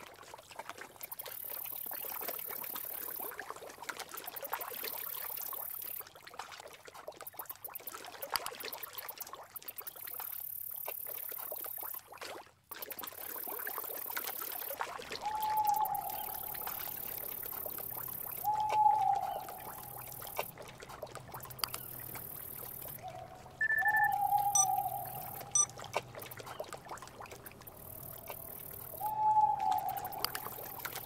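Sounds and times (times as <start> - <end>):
water trickling and splashing: 0.0 - 31.0
steady mid-pitched tone: 23.6 - 25.8.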